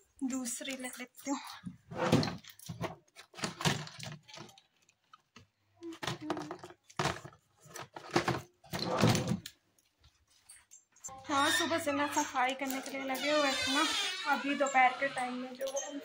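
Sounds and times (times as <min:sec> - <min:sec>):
rummaging knocks and rustles: 0:01.7 - 0:11.2.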